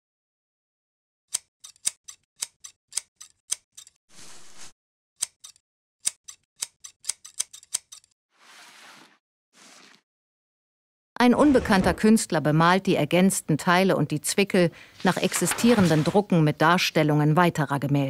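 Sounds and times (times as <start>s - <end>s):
scissors snipping: 1.3s - 4.0s, 5.2s - 8.1s.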